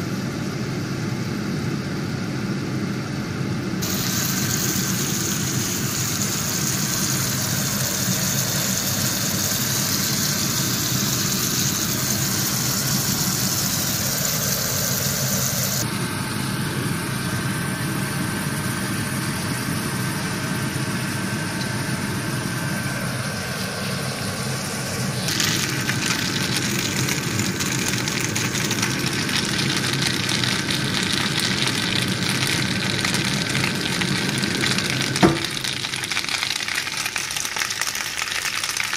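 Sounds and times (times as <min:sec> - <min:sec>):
steady mechanical hum: 0:00.0 - 0:38.9
food sizzling in a frying pan: 0:03.8 - 0:15.8, 0:23.8 - 0:38.9.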